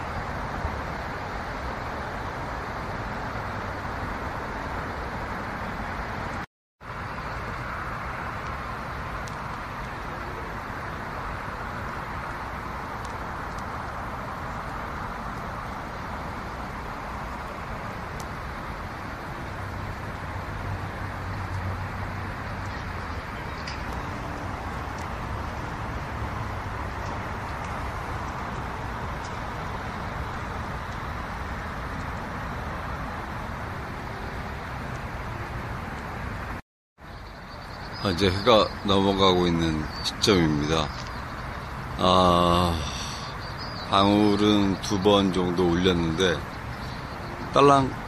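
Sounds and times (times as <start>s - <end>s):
distant road traffic hum: 0.0s - 48.0s
low drone: 42.0s - 48.0s.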